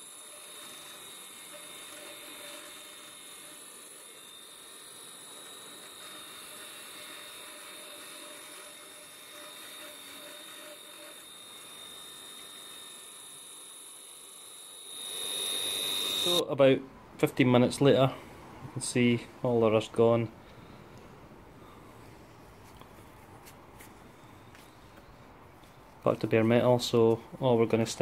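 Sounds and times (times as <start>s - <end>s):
wire brush wheel scrubbing metal: 0.0s - 14.0s
bench grinder motor whine: 0.0s - 16.4s.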